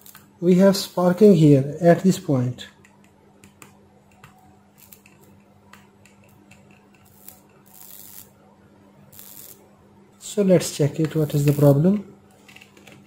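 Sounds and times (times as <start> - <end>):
faint steady hum: 0.0 - 13.0
electrical clicks and crackles: 2.7 - 8.3, 9.1 - 9.6, 11.0 - 13.0.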